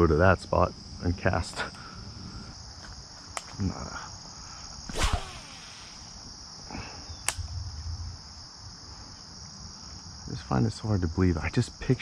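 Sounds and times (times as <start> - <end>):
high insect chorus: 0.0 - 12.0
fishing rod swish: 4.9 - 6.1
line running off reel: 4.9 - 6.1
sharp click: 7.2 - 7.5.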